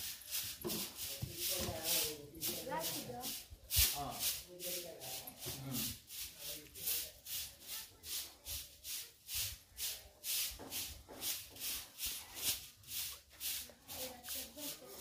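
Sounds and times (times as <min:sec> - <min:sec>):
footsteps scuffing on stone: 0:00.4 - 0:03.1.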